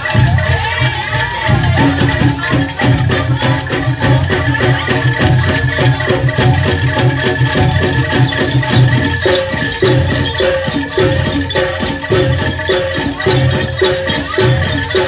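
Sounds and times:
deep drum beats: 0.0s - 15.0s
rattling jingle: 1.4s - 15.0s
struck metal keys and gongs: 4.0s - 15.0s.

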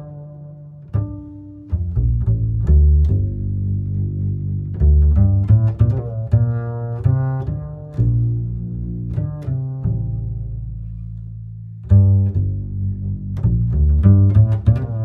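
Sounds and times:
plucked melody over bass line: 0.0s - 15.0s.

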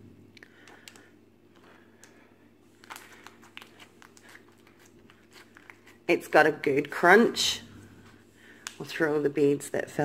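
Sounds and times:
slime crunching and crackling: 2.7s - 7.0s.

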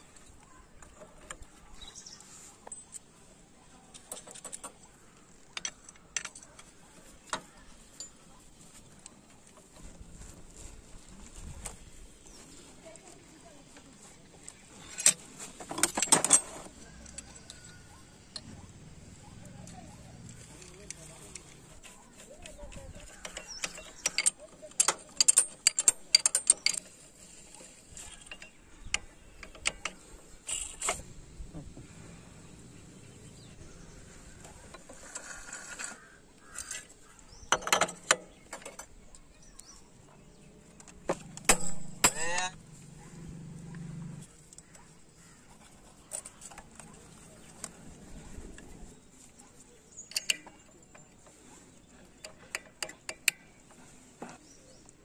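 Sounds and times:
metal hand tools clicking: 19.7s - 27.0s, 50.0s - 50.7s.

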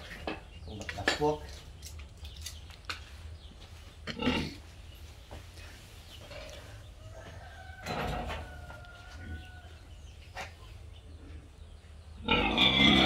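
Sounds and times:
rooster crowing: 7.2s - 9.8s.

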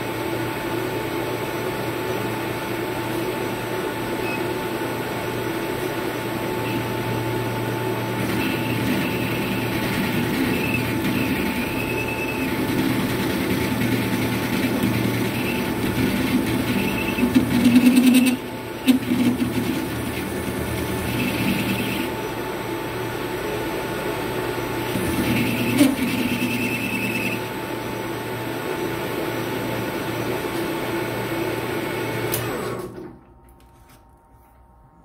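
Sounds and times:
metal lathe running: 6.6s - 30.3s.

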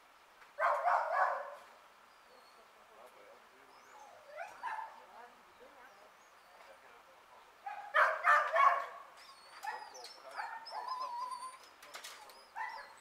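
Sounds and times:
dog barking: 0.6s - 1.7s, 4.4s - 5.0s, 7.6s - 10.8s, 12.5s - 13.0s
small birds chirping: 1.6s - 7.9s, 9.1s - 13.0s
dog whining: 9.2s - 13.0s.

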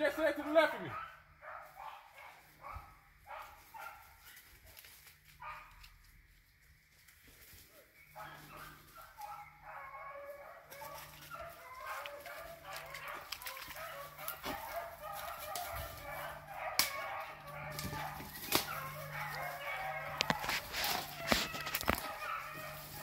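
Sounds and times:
pack of dogs baying: 0.0s - 4.4s, 8.1s - 23.0s
brush snapping: 10.8s - 15.8s, 16.6s - 22.3s.

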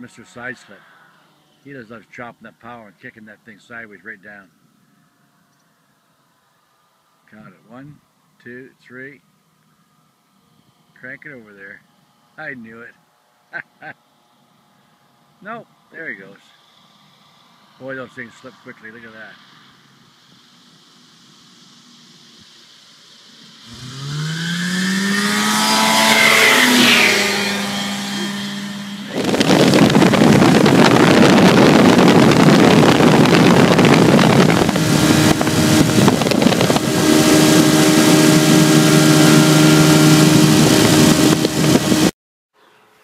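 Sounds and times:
ultralight plane engine: 0.0s - 42.1s
wind rush: 23.7s - 42.1s.

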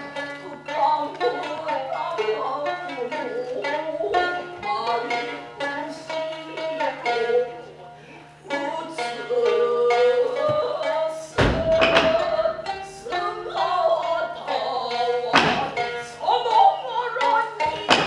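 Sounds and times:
shamisen plucking: 0.0s - 18.0s
loud thumps: 11.3s - 12.8s, 15.3s - 16.0s.

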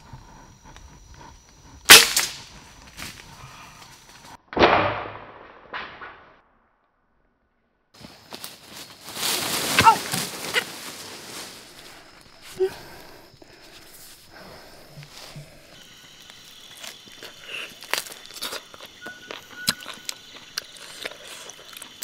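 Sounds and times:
crossbow snap: 1.9s - 2.5s
rustling through leaves and twigs: 8.0s - 19.0s.

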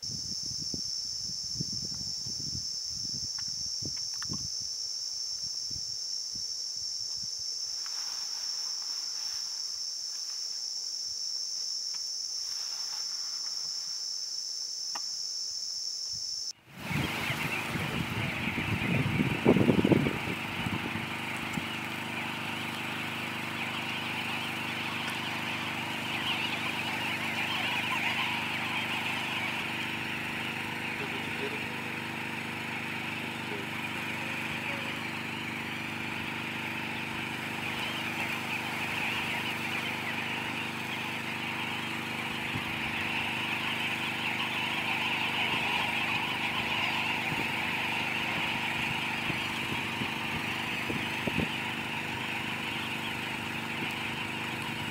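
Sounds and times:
engine idling hum: 16.6s - 54.9s
flock of birds calling: 16.7s - 54.9s.

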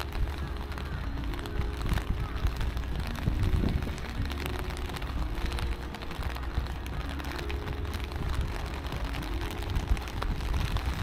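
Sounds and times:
low rumble: 0.0s - 11.0s
rain on stone paving: 0.0s - 11.0s.

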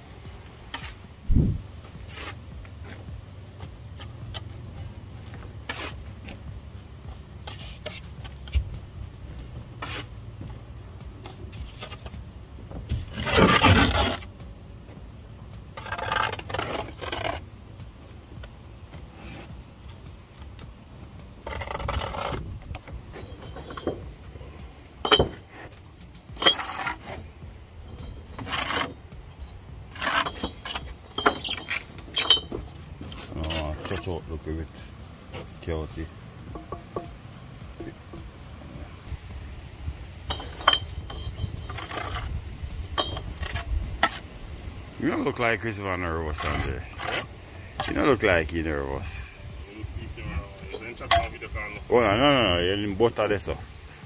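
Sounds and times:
trowel scraping mortar: 2.0s - 2.4s, 7.4s - 8.7s, 9.8s - 10.2s, 12.9s - 14.3s, 15.8s - 17.4s, 21.4s - 23.9s, 26.4s - 27.3s, 28.0s - 29.2s, 29.9s - 34.3s, 40.3s - 44.3s, 45.2s - 48.2s
trowel clinking against brick: 23.1s - 24.1s, 25.0s - 27.2s, 27.8s - 34.1s, 40.3s - 44.3s, 50.7s - 51.4s.

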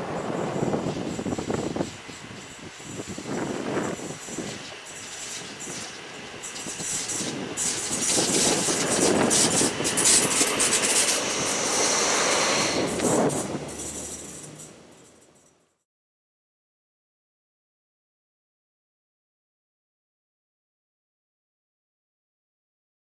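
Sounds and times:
rail vehicle wheels clattering: 0.0s - 15.7s.

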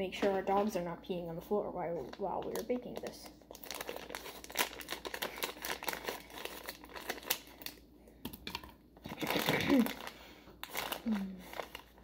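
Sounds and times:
wrapper crinkling: 2.0s - 7.8s, 8.4s - 12.0s.

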